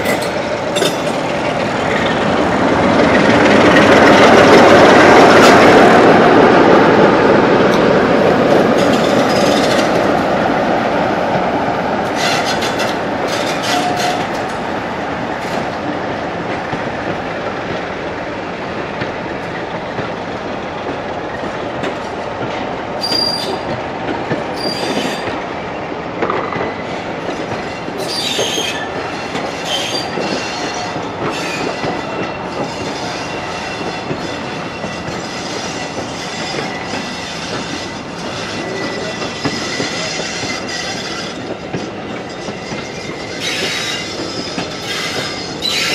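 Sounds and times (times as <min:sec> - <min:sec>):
train wheels clicking over joints: 0:00.0 - 0:25.5, 0:26.2 - 0:45.9
thin squeal on rails: 0:08.8 - 0:10.1, 0:12.0 - 0:14.6, 0:23.0 - 0:23.7, 0:24.5 - 0:25.4, 0:26.7 - 0:45.9.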